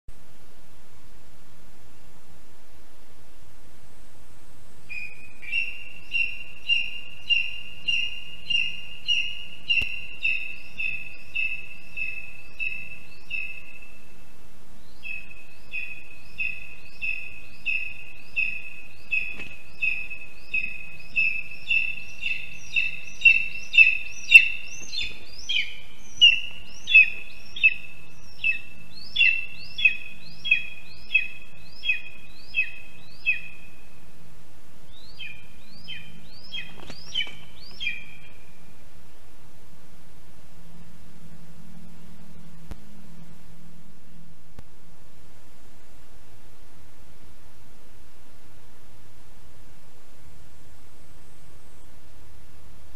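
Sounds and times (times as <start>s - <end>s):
eagle calling: 4.9s - 14.2s, 14.9s - 33.9s, 35.1s - 38.6s.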